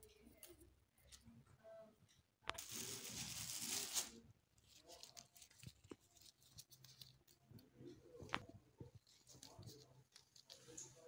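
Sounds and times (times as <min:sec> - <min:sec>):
rose petals rustling: 0:02.5 - 0:11.0.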